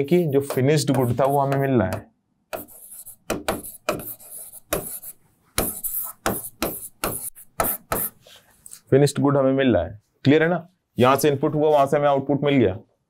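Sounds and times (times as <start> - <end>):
stylus scratching on a screen: 0.0 - 1.7, 2.6 - 8.2.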